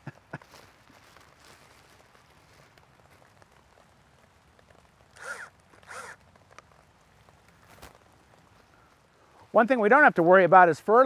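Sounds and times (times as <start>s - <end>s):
cordless drill motor whine: 5.2s - 6.2s.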